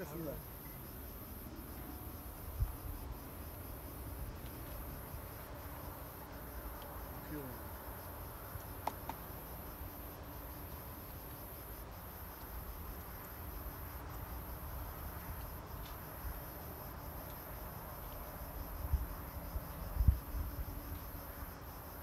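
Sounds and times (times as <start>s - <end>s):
high-pitched insect chorus: 0.0s - 22.0s
wind rumble on microphone: 1.9s - 5.3s, 18.3s - 21.5s.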